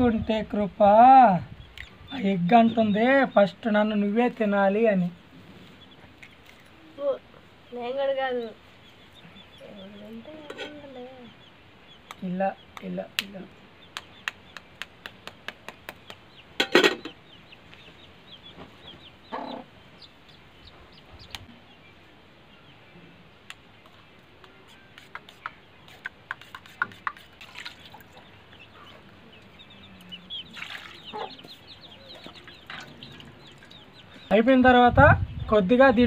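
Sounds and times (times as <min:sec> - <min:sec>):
birds chirping and clucking: 0:00.0 - 0:36.0
eggshell tapped to crack: 0:13.9 - 0:16.2.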